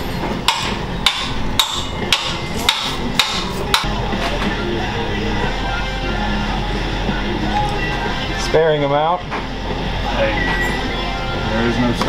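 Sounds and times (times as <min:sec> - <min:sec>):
hammer tapping metal punch: 0:00.4 - 0:03.9.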